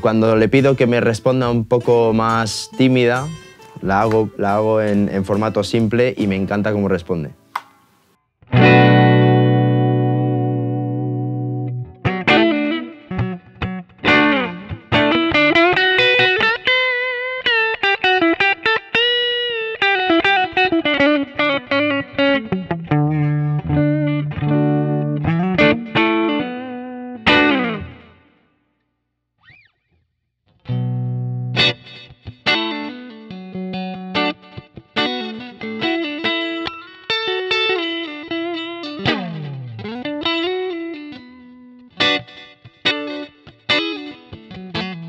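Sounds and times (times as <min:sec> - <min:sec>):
electric guitar through an amp: 0:08.5 - 0:28.4, 0:30.6 - 0:45.0.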